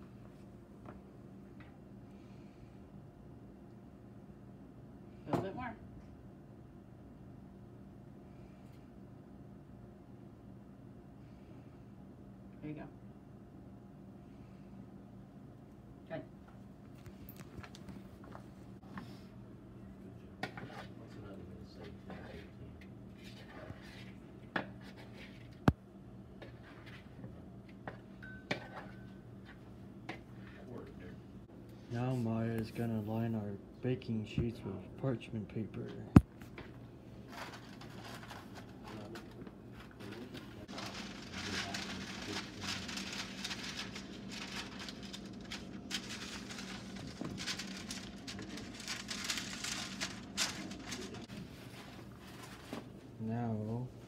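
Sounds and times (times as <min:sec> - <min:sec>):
low steady hum: 0:00.0 - 0:54.0
parchment paper crinkling: 0:37.2 - 0:52.8.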